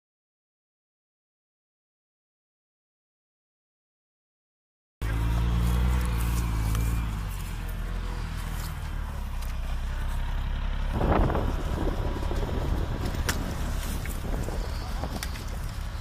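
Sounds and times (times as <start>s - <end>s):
diesel engine droning: 5.0s - 16.0s.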